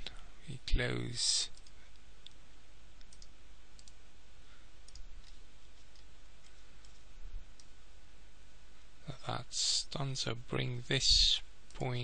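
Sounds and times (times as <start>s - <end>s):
steady low hum and hiss: 0.0s - 12.0s
computer mouse clicking: 1.5s - 2.4s, 3.0s - 4.0s, 4.8s - 7.7s.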